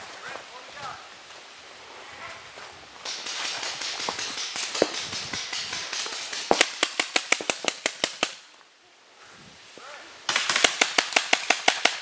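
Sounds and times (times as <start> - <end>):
paintball shots: 3.0 - 8.4, 10.3 - 12.0.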